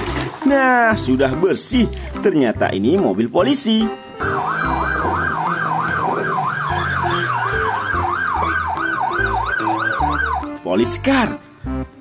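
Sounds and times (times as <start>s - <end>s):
police siren yelping: 4.1s - 10.6s.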